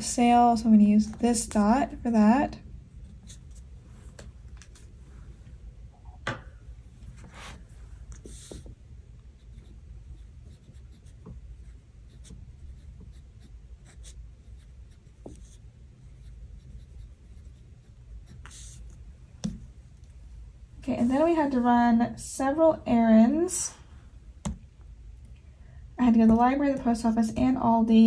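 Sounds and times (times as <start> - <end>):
steady low hum: 0.0 - 28.0
pen writing on paper: 8.2 - 8.8, 9.4 - 19.0.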